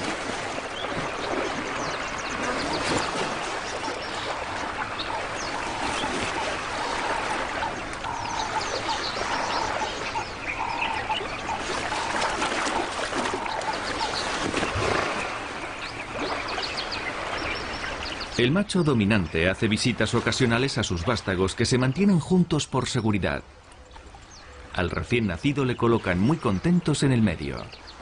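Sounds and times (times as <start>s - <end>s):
water washing and trickling: 0.0s - 22.1s
birds chirping and calling: 0.4s - 28.0s.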